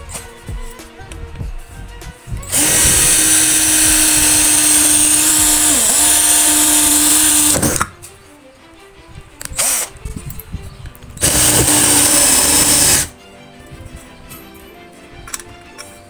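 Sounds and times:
cordless drill drilling metal: 2.5s - 7.9s, 9.4s - 9.9s, 11.2s - 13.1s.

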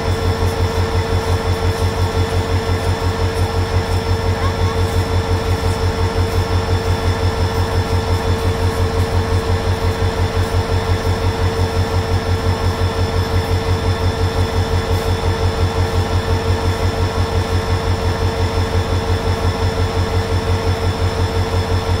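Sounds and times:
steady hum: 0.0s - 22.0s
train diesel engine throbbing: 0.0s - 22.0s.

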